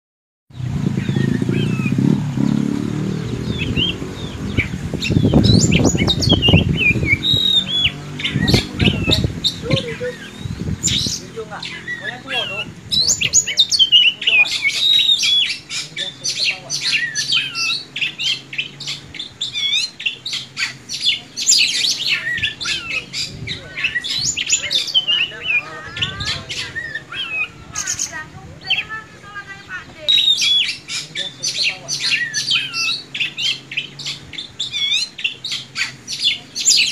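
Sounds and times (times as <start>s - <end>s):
loud low drone: 0.6s - 11.0s
bird whistled calls and chirps: 0.6s - 36.9s.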